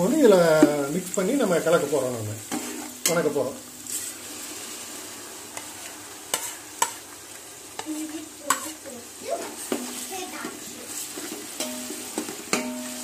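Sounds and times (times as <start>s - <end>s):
food sizzling in hot oil: 0.0s - 13.0s
metal spatula knocking pot: 11.6s - 13.0s.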